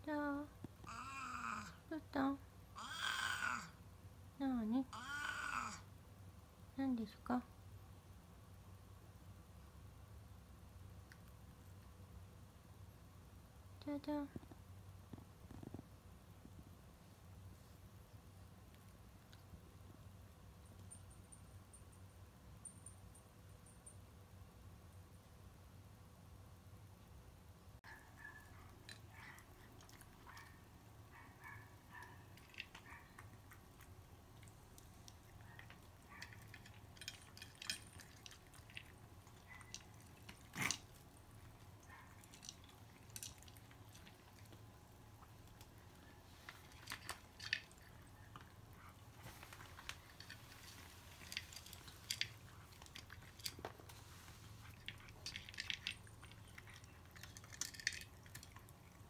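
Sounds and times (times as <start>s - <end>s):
cats crunching dry kibble: 28.7s - 30.7s, 31.7s - 59.0s.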